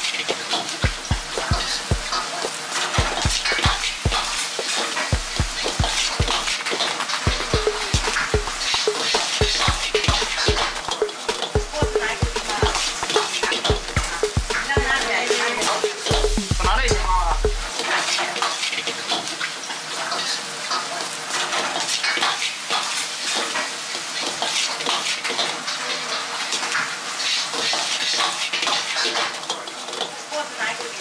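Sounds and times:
rice sizzling: 0.0 - 16.5, 17.6 - 31.0.

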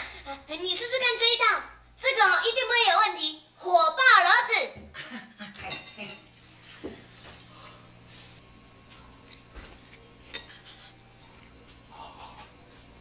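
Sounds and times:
low room hum: 0.0 - 13.0
utensils clinking on dishes: 5.5 - 7.4, 8.9 - 10.9.

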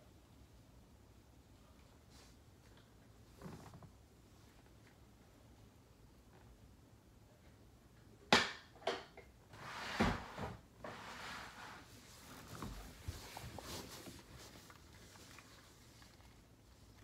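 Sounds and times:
balloons rustling and bumping: 12.0 - 16.9.

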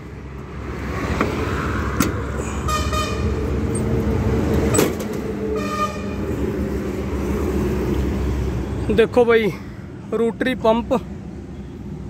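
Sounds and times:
vehicle horn toots: 2.6 - 3.4, 5.6 - 6.2.

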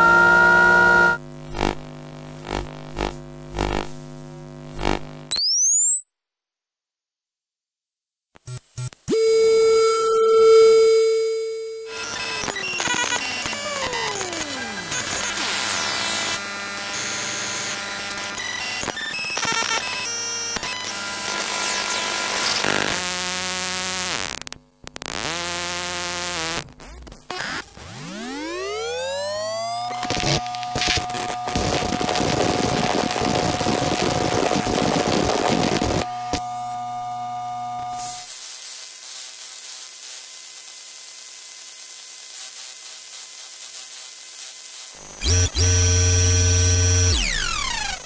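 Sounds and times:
buzzing hum: 0.0 - 13.8, 24.9 - 38.3, 45.0 - 48.0
electronic whine: 0.0 - 15.2, 27.8 - 38.3, 45.0 - 48.0
crackling static hiss: 1.1 - 6.8, 22.6 - 27.3, 29.9 - 48.0
electronic bleeps: 5.3 - 11.9.

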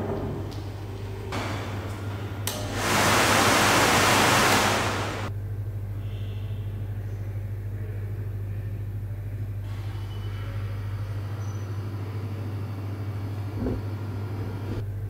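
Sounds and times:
loud rushing hiss: 2.7 - 5.3
electric motor humming: 2.8 - 5.3.

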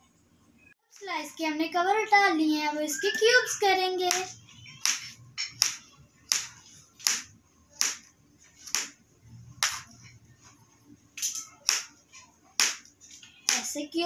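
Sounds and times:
knife chopping on cutting board: 4.1 - 8.0.

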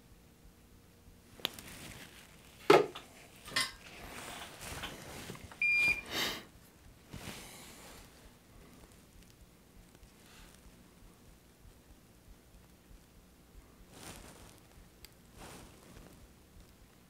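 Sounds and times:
short electronic beep: 5.6 - 6.0.

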